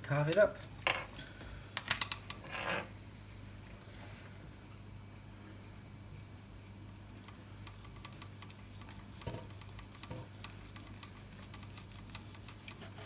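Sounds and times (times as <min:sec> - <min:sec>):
steady low hum: 0:00.0 - 0:13.0
knife slicing meat: 0:07.3 - 0:13.0.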